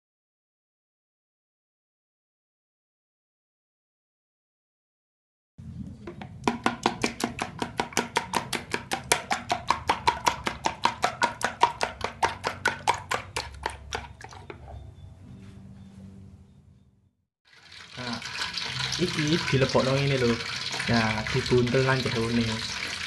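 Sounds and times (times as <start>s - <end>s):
utensil beating eggs in bowl: 6.0s - 14.8s, 17.5s - 23.0s.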